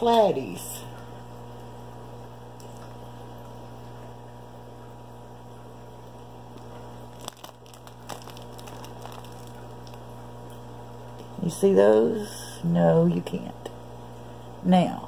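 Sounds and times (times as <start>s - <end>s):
electrical mains hum: 0.0s - 15.0s
plastic bag rustling: 6.6s - 10.2s.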